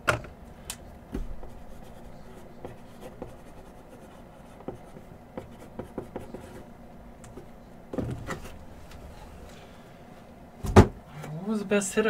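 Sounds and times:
marker scratching on cardboard: 1.4 - 6.6.

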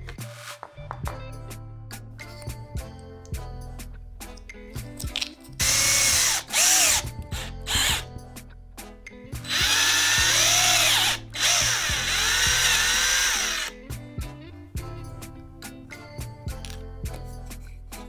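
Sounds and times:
cordless drill boring plastic: 5.6 - 8.0, 9.5 - 13.7.

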